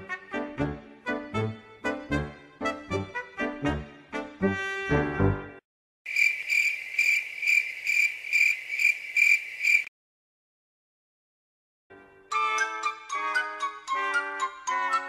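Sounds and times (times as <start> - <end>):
brass music phrase: 0.0 - 5.6
cricket chirping: 6.1 - 9.9.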